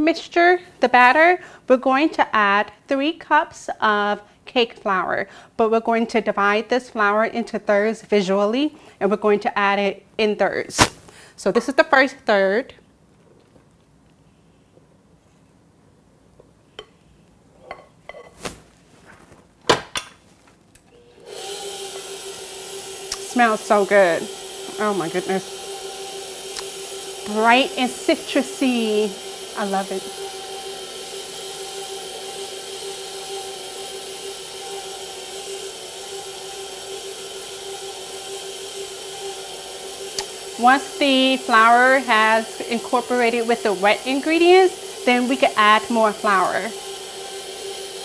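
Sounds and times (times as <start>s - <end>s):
flour scraping: 18.3s - 19.5s
stand mixer motor humming: 21.0s - 48.0s.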